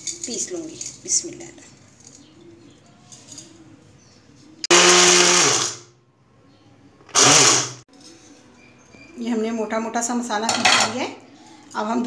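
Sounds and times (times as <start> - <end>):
mixer grinder grinding spices: 4.7 - 5.8, 7.1 - 7.8.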